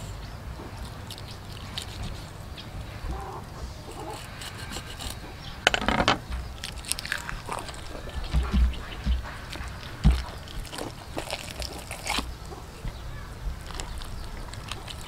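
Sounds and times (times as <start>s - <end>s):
wet squelching and scraping: 0.0s - 15.0s
fish thumping on board: 5.7s - 11.9s.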